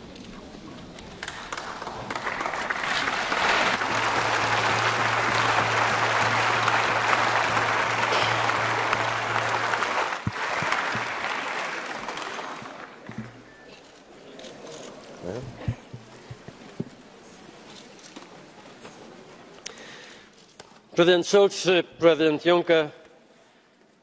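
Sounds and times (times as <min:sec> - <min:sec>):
crowd applause: 0:01.0 - 0:13.6
steady low hum: 0:03.5 - 0:11.3.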